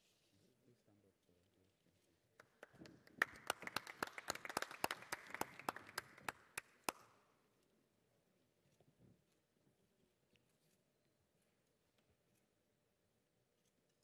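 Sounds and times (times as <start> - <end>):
audience applauding: 2.4 - 7.1
sharp single claps: 2.4 - 7.1.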